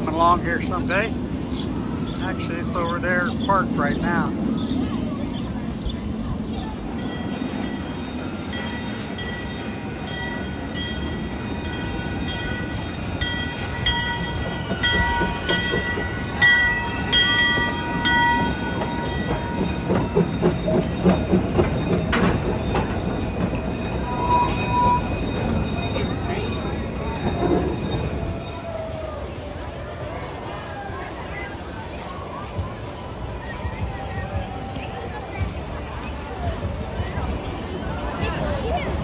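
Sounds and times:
rhythmic rail clatter: 0.0s - 39.0s
train wheels rolling on rails: 0.0s - 39.0s
high wheel squeal: 6.9s - 29.3s.

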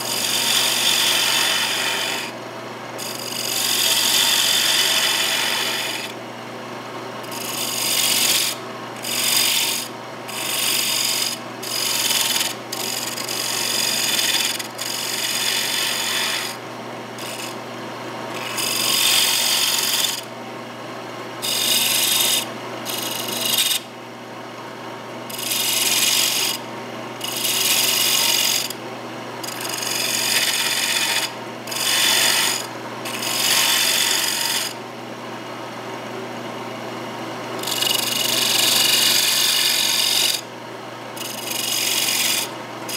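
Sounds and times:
lathe motor hum: 0.1s - 2.3s, 3.0s - 6.1s, 7.3s - 16.6s, 18.3s - 20.3s, 21.4s - 23.8s, 27.2s - 28.7s, 29.4s - 34.8s, 37.6s - 40.4s, 41.2s - 42.9s.

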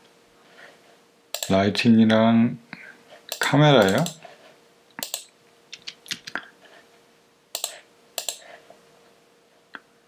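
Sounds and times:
faint steady hum: 0.0s - 10.0s
mouse and keyboard clicks: 3.3s - 4.2s, 5.0s - 6.4s, 7.6s - 8.4s.

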